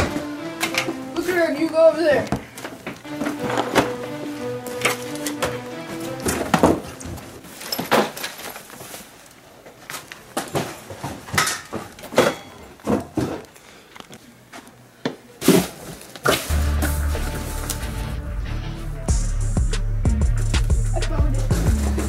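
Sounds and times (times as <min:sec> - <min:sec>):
clothes hangers rustling: 0:00.5 - 0:10.6
rummaging knocks and clatters: 0:02.2 - 0:13.6.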